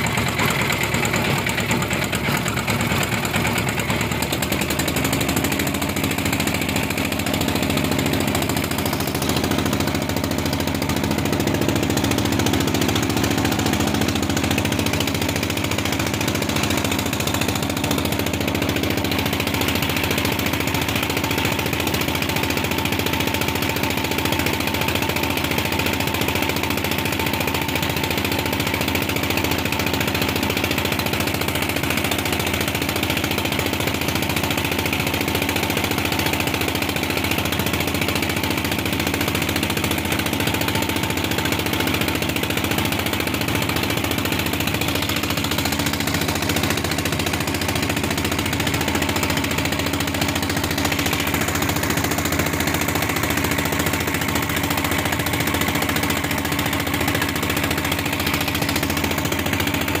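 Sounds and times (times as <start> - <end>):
boat engine thudding: 0.0 - 60.0.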